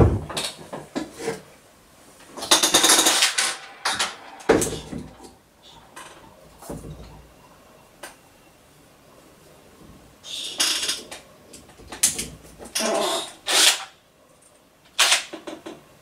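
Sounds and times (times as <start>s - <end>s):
cordless drill rattling: 12.7s - 13.9s.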